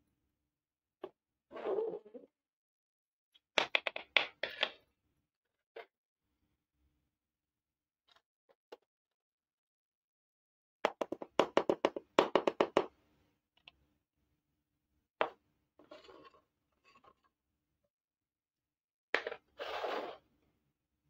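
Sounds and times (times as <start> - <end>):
toy pot knocking on plastic: 10.9 - 12.9
brief scrape: 19.6 - 20.2.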